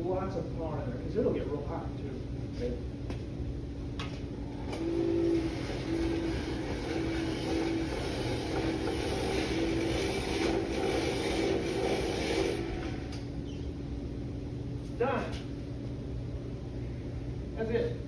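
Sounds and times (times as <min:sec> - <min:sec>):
buffing machine motor hum: 0:04.4 - 0:13.7.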